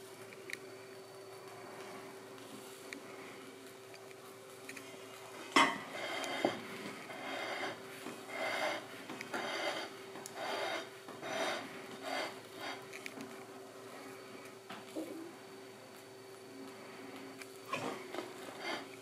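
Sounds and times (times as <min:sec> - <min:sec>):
plate scraping on wood: 0:05.6 - 0:12.8.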